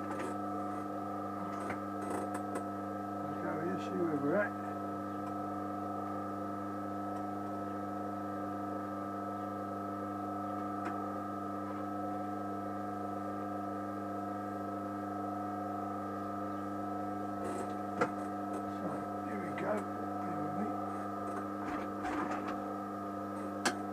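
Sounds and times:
machine motor humming: 9.4s - 23.9s.

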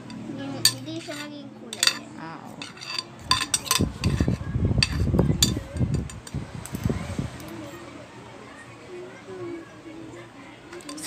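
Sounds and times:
whisk clinking against glass: 0.0s - 2.0s, 2.6s - 6.2s, 10.7s - 11.0s.

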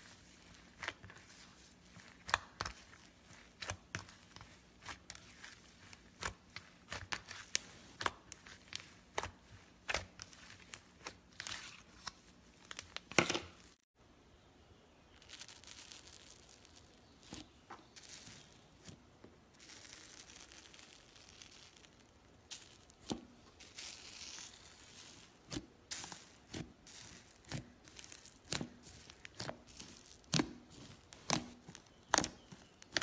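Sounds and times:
tiny bubbles crackling: 15.1s - 18.8s, 19.6s - 23.1s
slime squished by hand: 19.6s - 33.0s.

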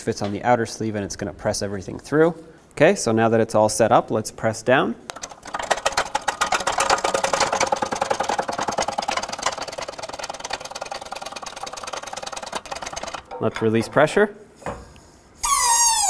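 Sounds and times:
hydraulic press pumping: 5.1s - 13.7s.

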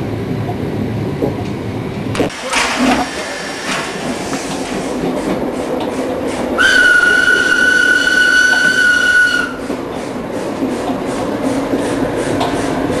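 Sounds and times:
train running noise: 0.0s - 13.0s
steam locomotive whistle: 6.6s - 9.6s.

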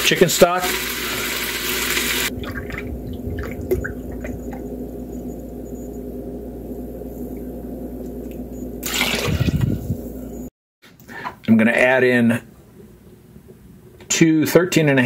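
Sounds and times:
liquid pouring and trickling: 1.7s - 4.7s, 8.8s - 9.8s
drips: 2.3s - 4.8s.

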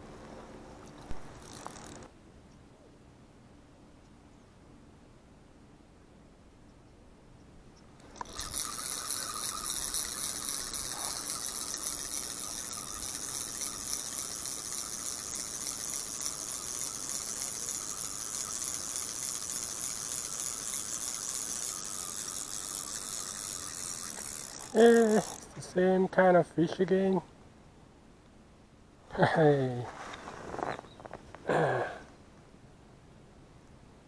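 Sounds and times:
fishing reel cranking: 0.9s - 2.1s, 8.0s - 25.9s.

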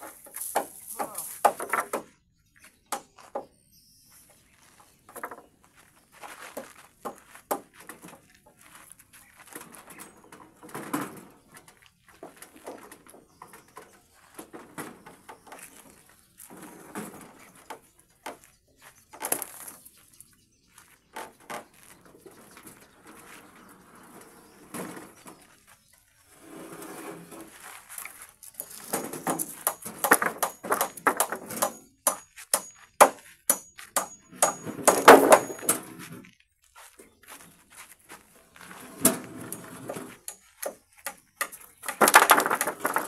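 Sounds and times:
wooden planks knocking: 0.0s - 2.2s, 28.6s - 35.7s, 40.1s - 43.0s.

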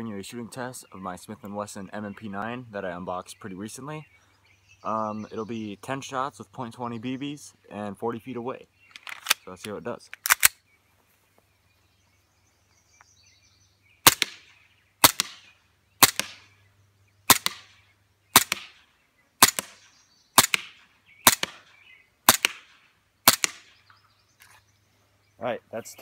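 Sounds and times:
airsoft pistol shots: 14.0s - 16.4s, 17.3s - 18.8s, 19.4s - 23.7s.

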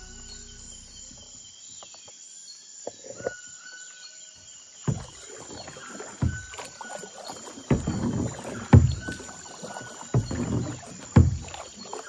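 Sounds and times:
paddle splashing in water: 4.8s - 12.0s
paddle knocking on kayak: 4.9s - 12.0s.

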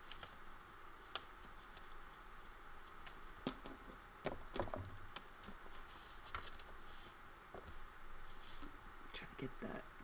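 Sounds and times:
paper crinkling: 0.0s - 3.3s, 5.4s - 8.7s.

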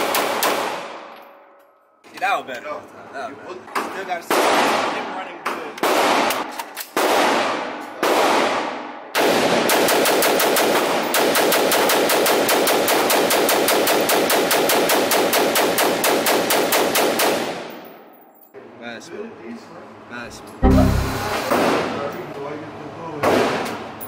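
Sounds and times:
rifle firing rapidly indoors: 7.0s - 17.4s.

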